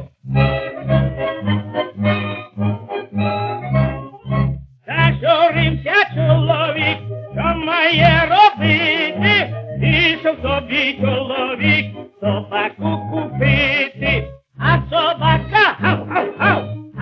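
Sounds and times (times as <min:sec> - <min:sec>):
small orchestra accompaniment: 0:00.0 - 0:17.0
tenor singing a folk song: 0:04.9 - 0:17.0.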